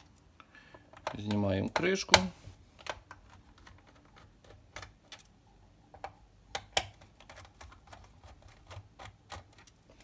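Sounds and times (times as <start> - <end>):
plastic cover clicking and snapping: 5.9 - 9.8.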